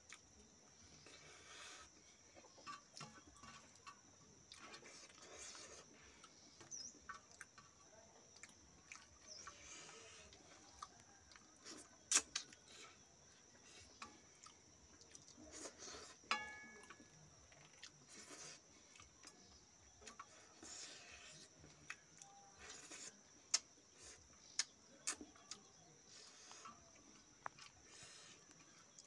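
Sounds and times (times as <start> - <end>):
soft chewing: 0.0 - 29.0
steel plate ringing: 16.3 - 16.9.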